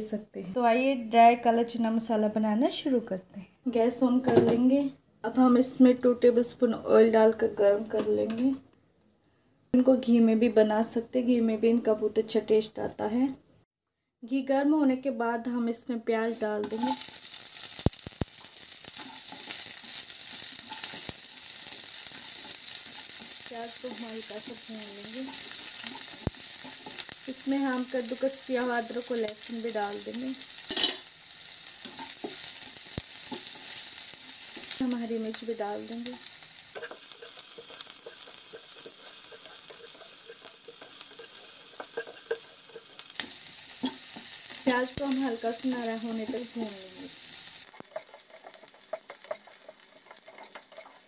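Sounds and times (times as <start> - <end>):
onion sizzling in hot fat: 16.6 - 51.0
spatula scraping a pan: 16.7 - 34.9, 36.0 - 45.2, 47.2 - 51.0.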